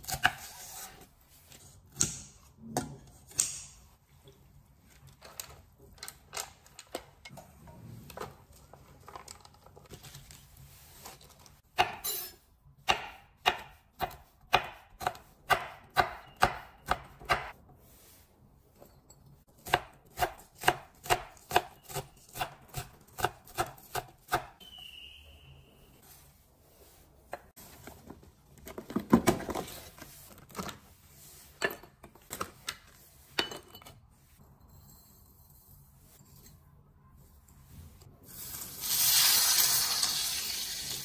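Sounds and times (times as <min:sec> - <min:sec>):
knife chopping on wooden board: 0:12.8 - 0:17.5.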